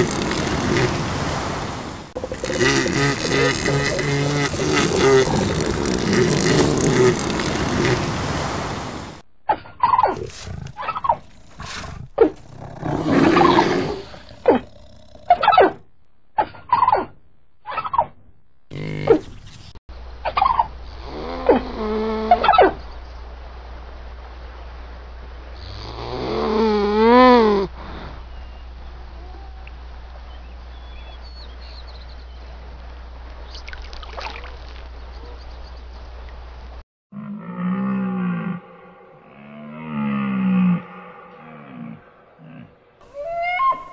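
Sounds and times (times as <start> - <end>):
animal growls and roars: 0.0 - 8.8, 10.0 - 15.8, 20.5 - 22.8, 25.6 - 28.3, 37.1 - 43.9.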